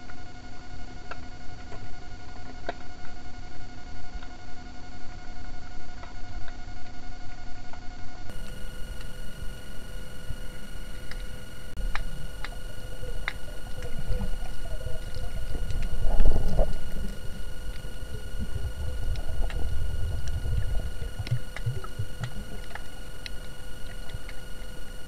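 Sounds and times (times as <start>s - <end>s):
thin electronic whine: 0.0s - 25.0s
low rumble of moving water: 8.3s - 25.0s
faint scattered clicks: 8.4s - 24.8s.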